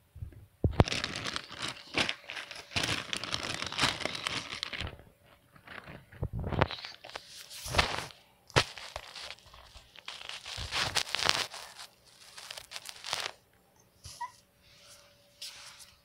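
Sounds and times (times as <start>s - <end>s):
plastic bag crinkling: 0.7s - 13.4s.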